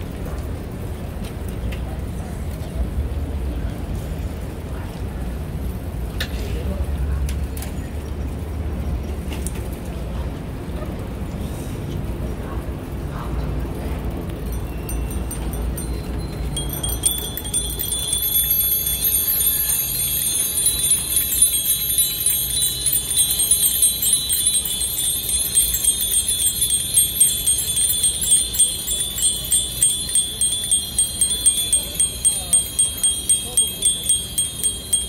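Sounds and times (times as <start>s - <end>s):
bicycle bells ringing: 14.2s - 35.0s.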